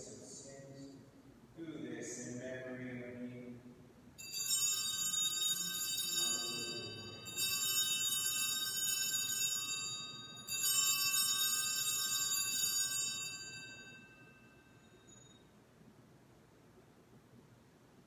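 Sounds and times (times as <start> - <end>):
small altar bells ringing: 4.2 - 15.5.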